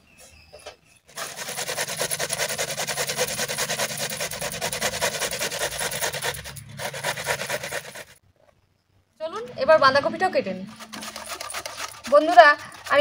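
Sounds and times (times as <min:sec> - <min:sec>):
carrot grating on metal grater: 0:01.1 - 0:08.2, 0:10.6 - 0:13.0.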